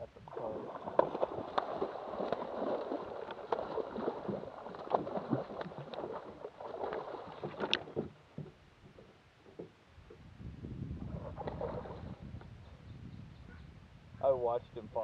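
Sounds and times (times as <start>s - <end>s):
fish thrashing water splashing: 0.3s - 9.1s.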